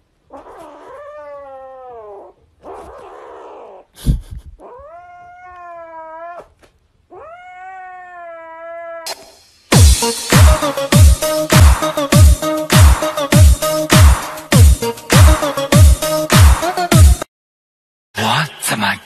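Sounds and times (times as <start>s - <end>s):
kitten yowling: 0.3s - 3.9s, 4.6s - 9.2s.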